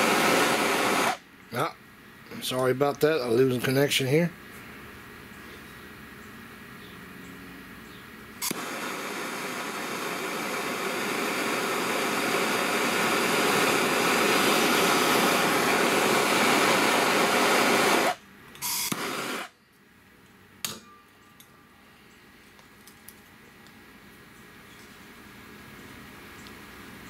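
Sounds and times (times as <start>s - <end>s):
propane torch hissing: 0.0s - 1.7s, 8.4s - 19.6s
torch igniting pop: 8.4s - 19.5s.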